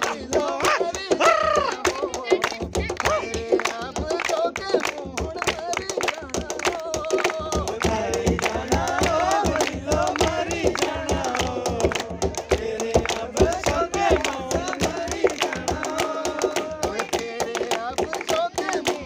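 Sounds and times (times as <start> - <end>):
man singing unaccompanied: 0.0 - 19.0
rhythmic hand clapping: 0.0 - 19.0.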